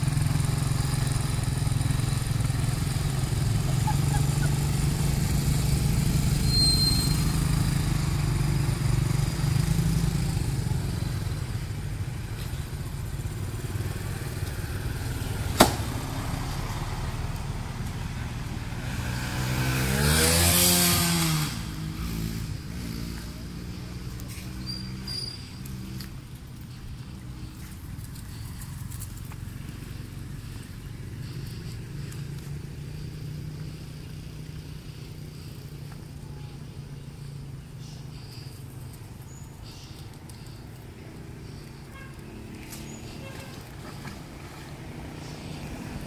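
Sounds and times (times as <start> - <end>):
car engines passing: 0.0 - 46.0
motorbike engines passing: 0.0 - 46.0.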